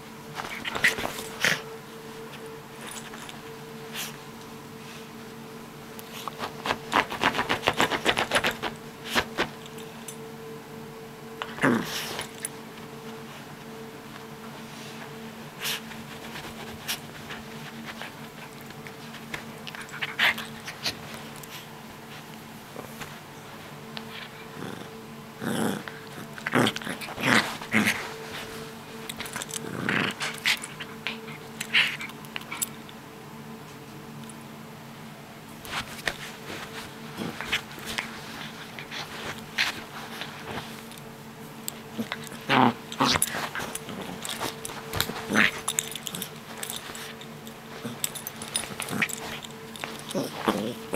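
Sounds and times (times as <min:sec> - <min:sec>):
faint hum: 0:00.0 - 0:50.9
dog play-growling: 0:00.3 - 0:04.2, 0:11.4 - 0:12.6, 0:15.0 - 0:23.2, 0:24.0 - 0:33.0, 0:35.6 - 0:50.9
dog biting sounds: 0:06.2 - 0:09.5, 0:41.9 - 0:50.9
rustles and scuffs: 0:11.9 - 0:24.4, 0:27.2 - 0:29.4, 0:35.6 - 0:50.9.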